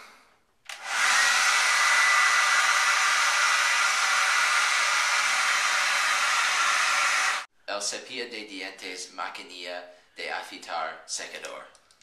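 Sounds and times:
hair dryer blowing air: 0.7s - 7.5s.

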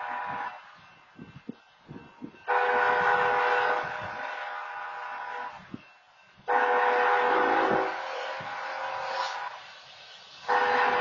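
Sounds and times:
locomotive air horn blasts: 0.0s - 0.6s, 2.4s - 5.8s, 6.4s - 9.7s, 10.4s - 11.0s.

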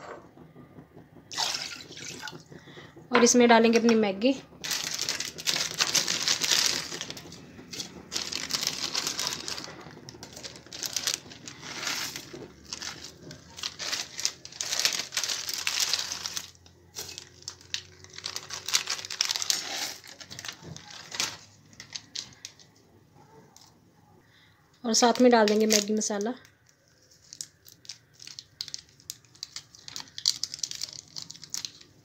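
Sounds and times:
plastic packets crinkling: 4.6s - 22.8s, 24.9s - 32.0s.

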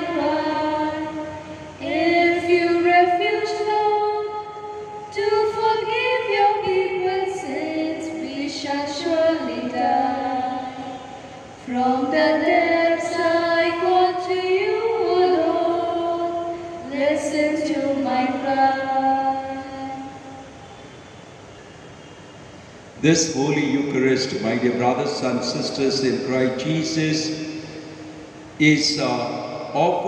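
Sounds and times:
women singing a slow hymn: 0.0s - 20.6s.

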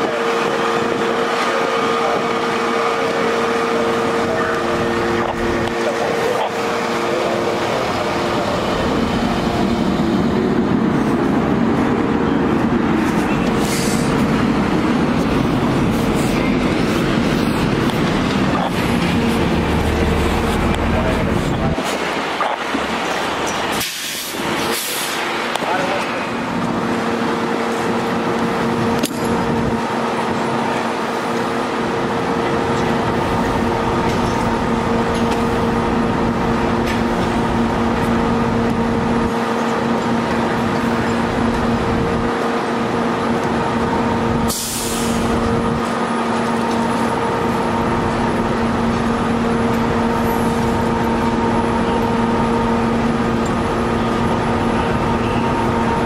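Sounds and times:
diesel engines idling: 0.0s - 56.0s
air brake hiss: 13.6s - 14.1s, 23.8s - 25.3s, 44.5s - 45.3s.

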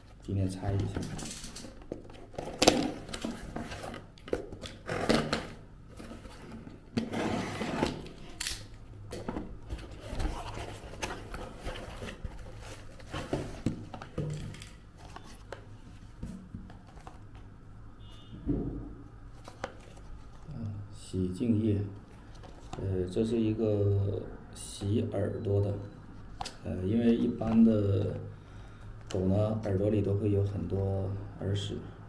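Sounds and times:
cardboard and plastic rustling: 0.7s - 8.4s, 9.1s - 17.4s.

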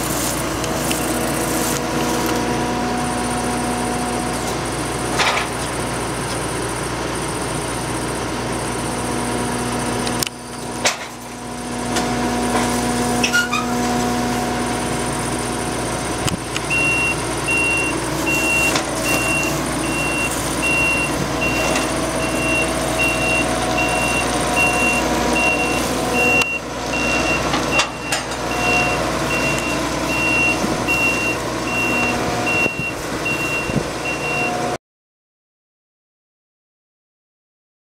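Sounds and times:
combine harvester engine running: 0.0s - 34.8s
reversing alarm beeping: 16.7s - 34.7s.

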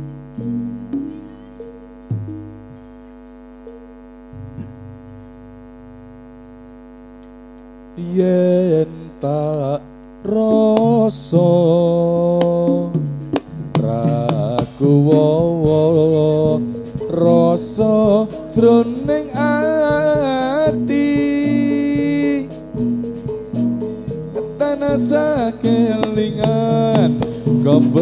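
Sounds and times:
steady hum: 0.0s - 28.0s
sharp drum hits: 0.4s - 3.0s, 4.3s - 5.2s, 12.4s - 28.0s
person singing: 8.0s - 13.0s, 13.7s - 22.7s, 24.2s - 28.0s.

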